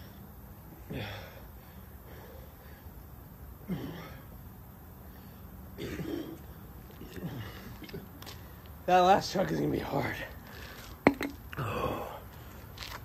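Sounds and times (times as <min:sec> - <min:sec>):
man breathing hard: 0:00.0 - 0:03.0, 0:11.6 - 0:12.7
man grunting: 0:11.6 - 0:12.2.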